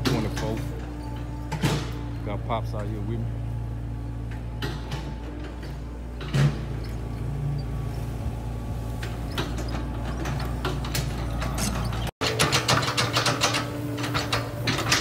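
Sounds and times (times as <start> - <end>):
loud clunk: 0.0 - 2.2, 4.2 - 7.2
engine humming: 0.0 - 15.0.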